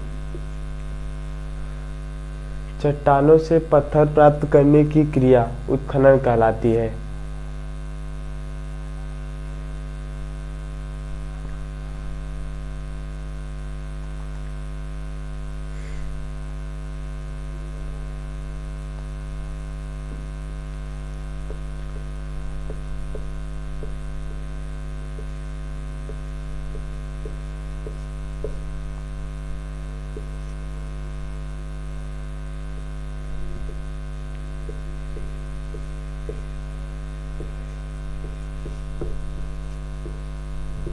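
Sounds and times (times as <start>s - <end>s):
electrical mains hum: 0.0s - 40.9s
marker pen ticking on whiteboard: 21.4s - 24.5s, 25.1s - 28.9s, 34.6s - 36.6s, 37.4s - 40.9s.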